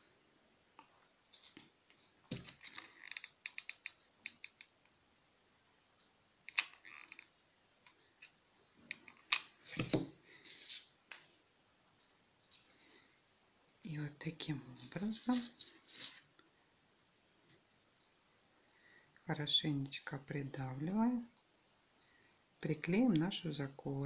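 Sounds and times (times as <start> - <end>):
small clicks and rustling: 0.8 - 5.0, 6.4 - 11.3, 14.7 - 16.5.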